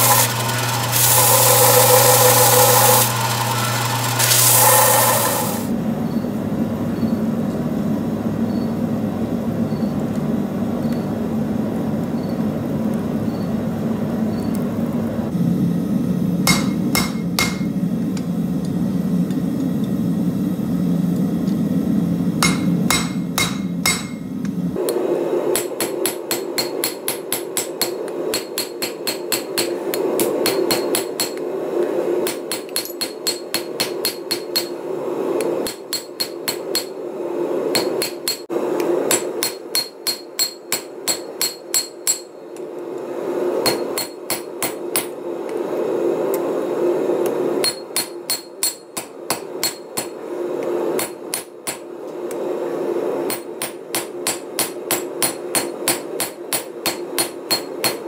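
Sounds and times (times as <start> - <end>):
hammer blows ringing on anvil: 16.4 - 17.7, 22.4 - 24.3, 39.1 - 42.4.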